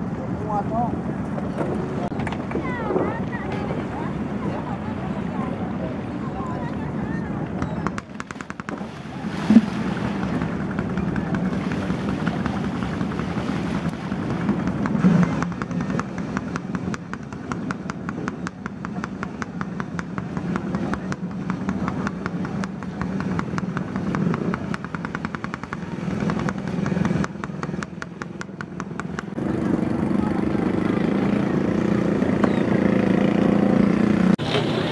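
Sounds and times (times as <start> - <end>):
boat engine idling: 0.0 - 33.5, 34.4 - 34.9
loud splash: 8.7 - 10.6, 11.5 - 14.6.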